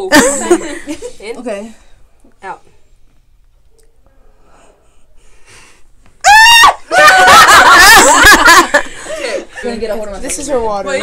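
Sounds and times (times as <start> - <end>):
girl yelping: 6.2 - 8.0
girl squealing and laughing: 6.2 - 8.6.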